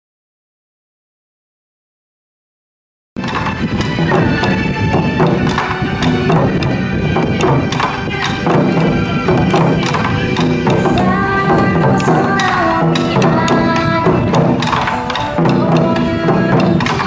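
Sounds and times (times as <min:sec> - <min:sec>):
pop song with steady beat: 0:10.8 - 0:17.0.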